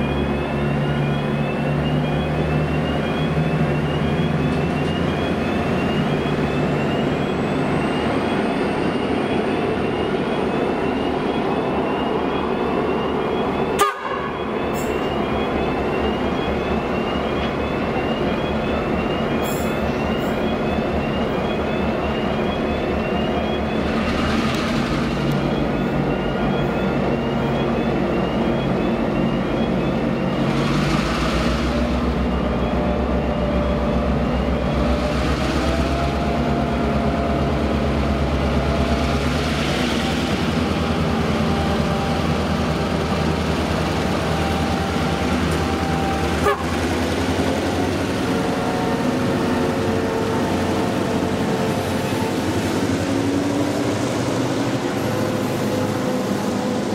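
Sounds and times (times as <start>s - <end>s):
diesel locomotives howling: 0.0s - 56.9s.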